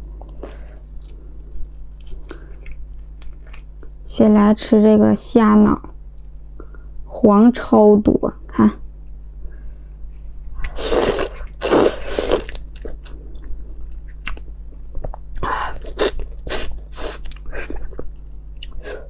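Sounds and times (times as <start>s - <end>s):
slurping: 10.6s - 13.2s
wet chewing: 10.6s - 18.8s.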